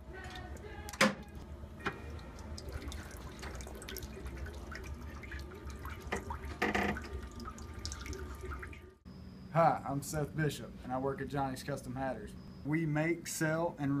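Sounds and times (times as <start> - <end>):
steady low hum: 0.0 - 14.0
water spitting and crackling: 2.4 - 8.8.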